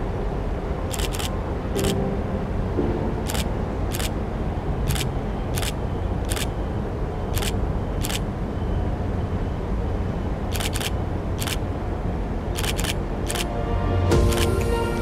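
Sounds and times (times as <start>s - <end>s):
sharp clicks: 0.9s - 2.0s, 3.3s - 4.1s, 4.9s - 6.5s, 7.3s - 8.2s, 10.5s - 11.6s, 12.6s - 13.5s.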